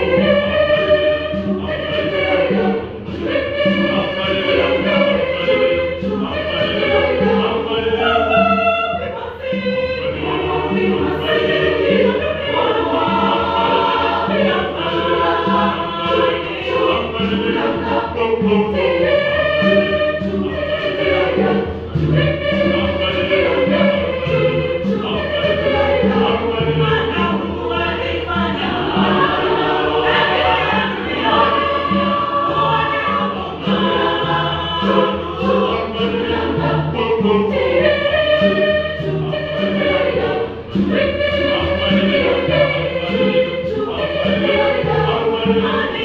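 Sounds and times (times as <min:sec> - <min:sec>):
choir singing gospel: 0:00.0 - 0:46.0
conga drums beat: 0:00.0 - 0:46.0.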